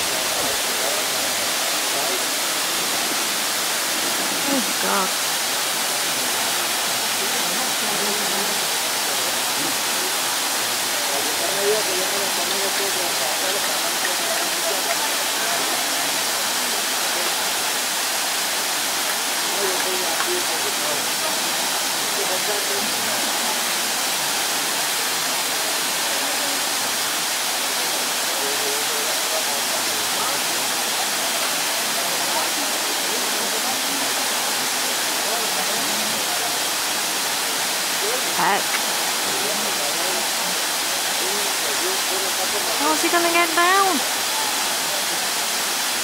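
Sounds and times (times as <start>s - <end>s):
waterfall rushing: 0.0s - 46.0s.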